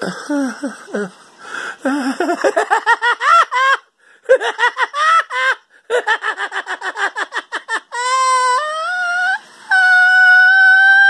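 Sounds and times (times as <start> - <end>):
man laughing hard: 1.9 - 8.2.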